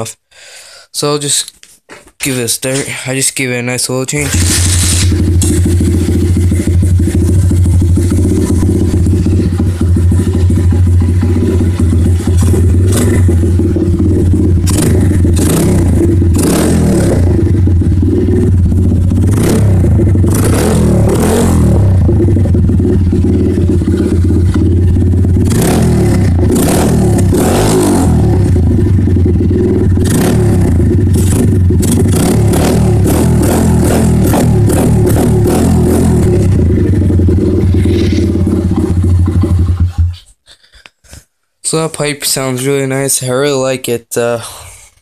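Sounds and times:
motorbike engine revving: 0:04.2 - 0:40.2.

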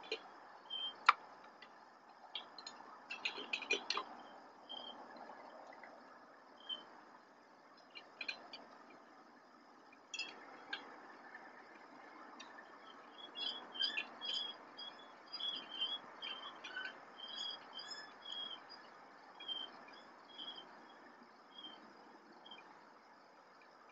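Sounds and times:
high-pitched chirping calls: 0:00.0 - 0:01.1, 0:12.8 - 0:20.7
faint night hiss: 0:00.0 - 0:23.9
thin high steady tone: 0:00.0 - 0:23.9.

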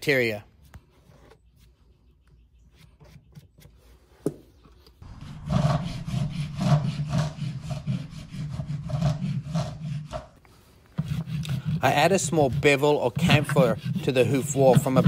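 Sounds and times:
rasp filing hoof: 0:05.0 - 0:15.0.

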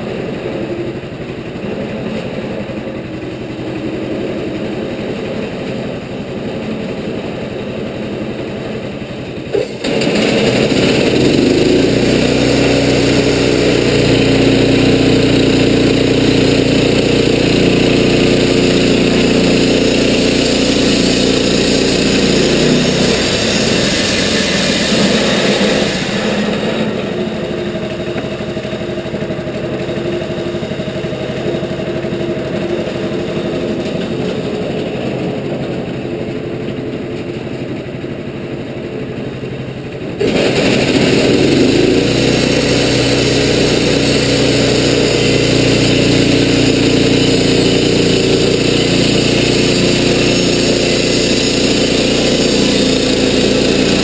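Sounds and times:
sawmill engine running: 0:00.0 - 0:54.0
band blade sawing log: 0:09.6 - 0:35.1, 0:40.2 - 0:54.0.

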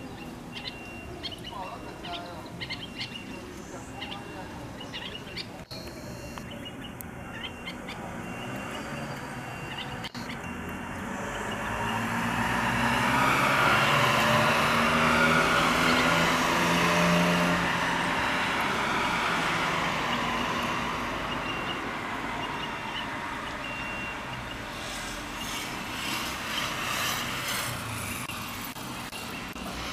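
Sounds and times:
motor vehicle passing: 0:06.5 - 0:29.9.

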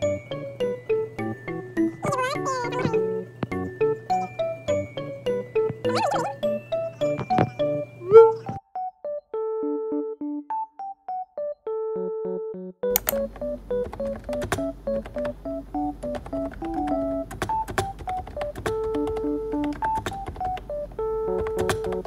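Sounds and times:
piano-like background music: 0:00.0 - 0:22.0
keyboard key clicks: 0:12.9 - 0:15.4, 0:16.0 - 0:22.0.

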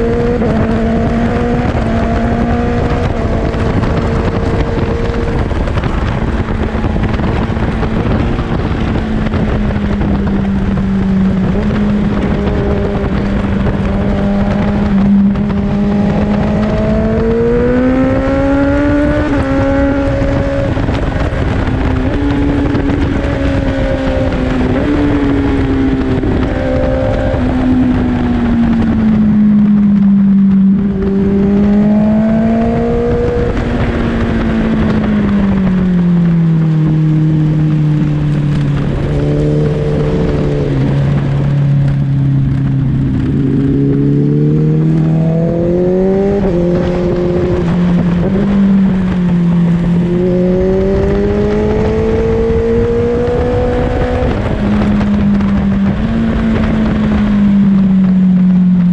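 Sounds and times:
motorcycle engine running: 0:00.0 - 0:58.9
wind and road noise: 0:00.0 - 0:58.9.

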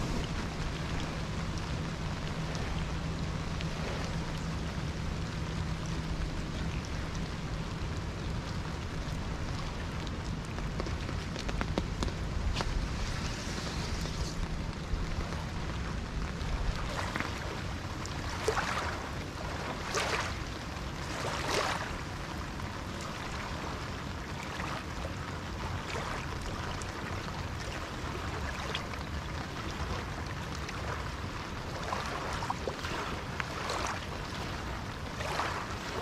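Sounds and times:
waves lapping against rocks: 0:00.0 - 0:04.7, 0:05.4 - 0:36.0
rain hissing: 0:00.0 - 0:16.7.

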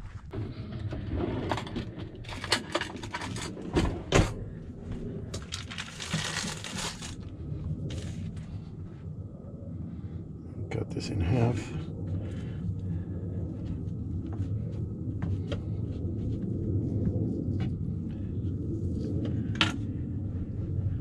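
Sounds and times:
low rumble: 0:00.0 - 0:21.0.

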